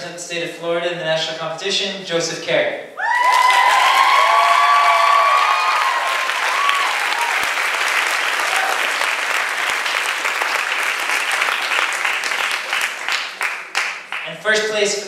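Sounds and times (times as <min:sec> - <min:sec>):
crowd applauding: 0:03.1 - 0:14.3.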